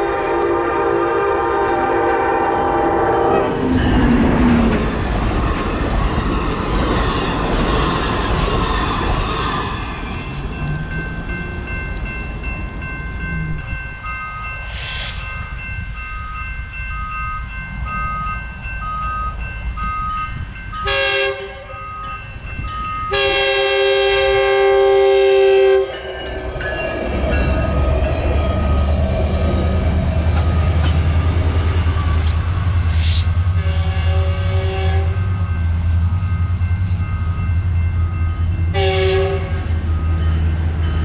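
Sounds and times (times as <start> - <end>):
train horn blasts: 0.0 - 3.6, 20.8 - 21.8, 23.1 - 26.4, 33.0 - 35.4, 38.7 - 39.7
crossing warning bell dinging: 0.0 - 41.0
train rumble: 0.0 - 41.0.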